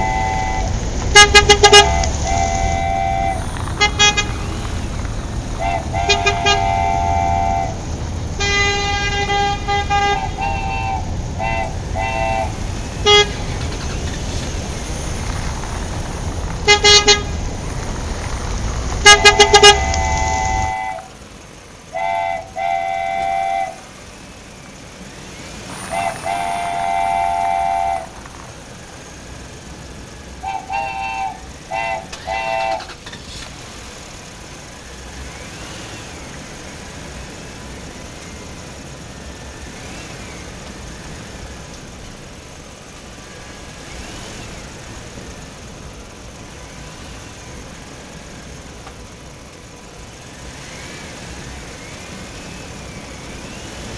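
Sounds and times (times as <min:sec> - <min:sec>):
vehicle horn honks: 0:00.0 - 0:04.5, 0:05.6 - 0:07.8, 0:08.4 - 0:13.5, 0:16.6 - 0:17.3, 0:19.0 - 0:21.1, 0:21.9 - 0:23.9, 0:25.7 - 0:28.2, 0:30.4 - 0:33.0.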